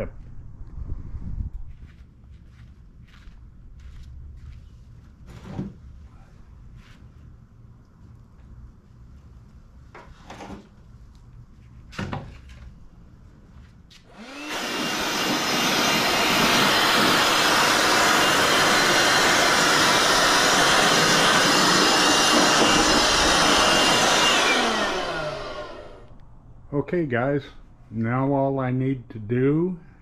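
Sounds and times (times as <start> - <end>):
electric blower running: 14.1 - 26.2.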